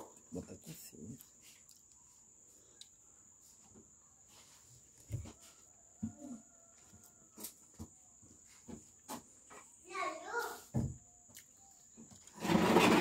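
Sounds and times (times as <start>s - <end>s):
thump: 10.7s - 11.0s.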